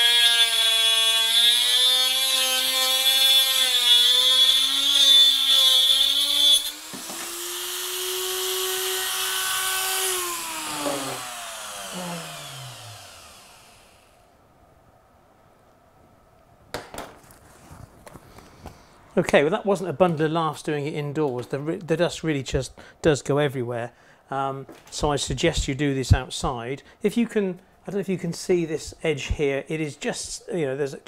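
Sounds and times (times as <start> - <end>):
rotary tool whining: 0.0 - 14.2.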